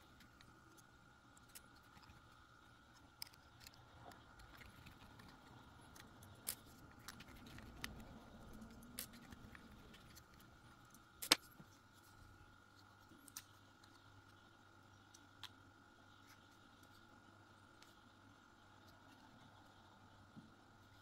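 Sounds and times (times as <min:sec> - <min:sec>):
plastic parts being handled: 0:00.0 - 0:14.4.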